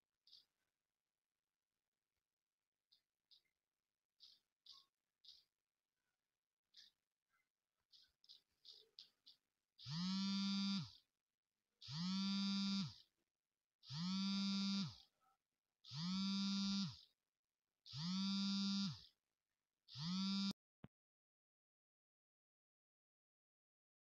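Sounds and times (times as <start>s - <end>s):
smartphone vibrating: 9.8s - 11.1s, 11.8s - 13.1s, 13.8s - 15.1s, 15.9s - 17.2s, 17.9s - 19.2s, 19.9s - 20.6s.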